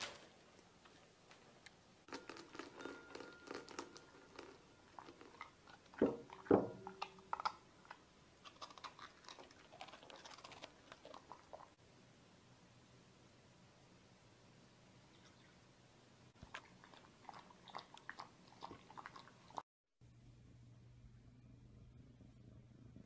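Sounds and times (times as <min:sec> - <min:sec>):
dog crunching and chewing: 0:04.0 - 0:11.8, 0:16.4 - 0:19.6.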